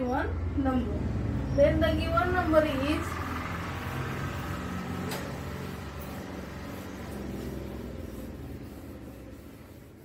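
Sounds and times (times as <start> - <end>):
chalk scratching on blackboard: 3.6 - 10.0.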